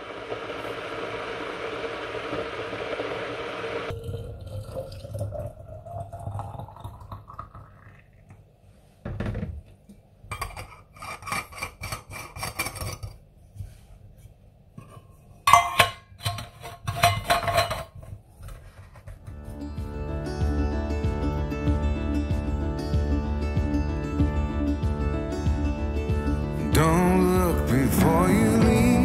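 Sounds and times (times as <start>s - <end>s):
metal objects clinking: 15.5s - 18.0s.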